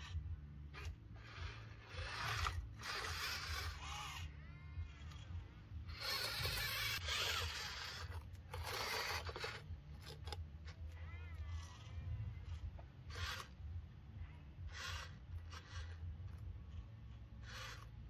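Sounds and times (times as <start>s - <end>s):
steady low hum: 0.0s - 18.0s
rasping scrapes: 0.8s - 4.2s, 4.8s - 10.4s.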